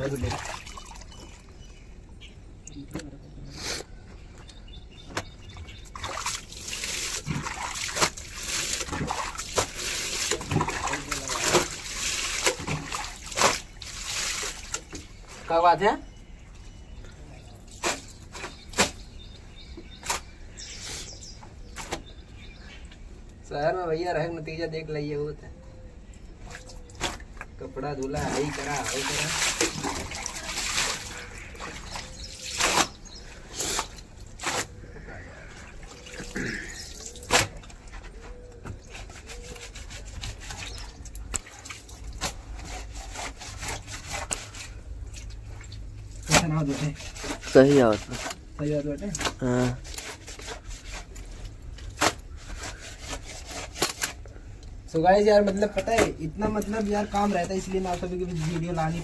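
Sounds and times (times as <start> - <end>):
wet cloth scrubbing concrete: 5.7 - 15.6, 28.0 - 54.2, 55.4 - 59.0.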